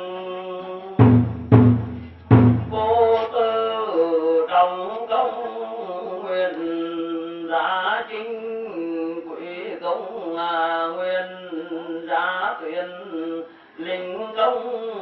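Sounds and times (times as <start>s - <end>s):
heavy drum strokes: 1.0s - 3.3s
man chanting into microphone: 2.6s - 15.0s.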